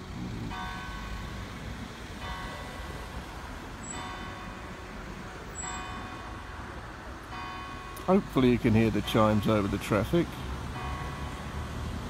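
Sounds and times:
traffic noise: 0.0 - 12.0
church bell striking: 7.2 - 9.7, 10.7 - 11.6.

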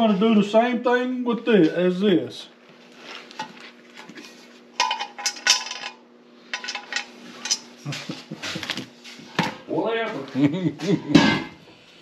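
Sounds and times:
steady low hum: 0.0 - 12.0
small metal parts clinking: 4.8 - 7.7.

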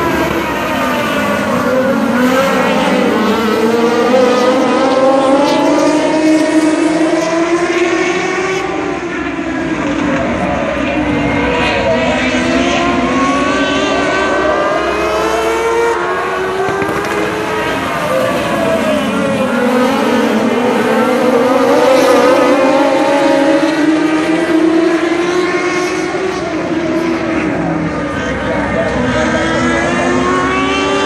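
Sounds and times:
race cars passing at speed: 0.0 - 31.0.

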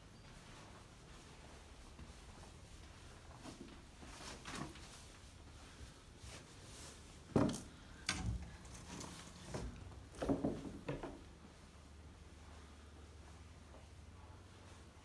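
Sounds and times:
footsteps and scuffs on carpet: 0.0 - 7.3, 11.4 - 15.0
faint steady background noise: 0.0 - 15.0.

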